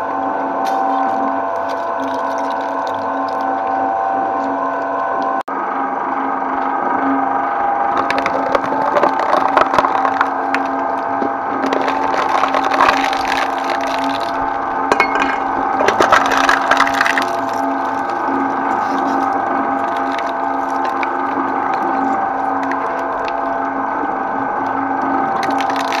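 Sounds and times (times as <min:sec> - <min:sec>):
shredder motor humming: 0:00.0 - 0:26.0
hard material cracking: 0:07.9 - 0:26.0.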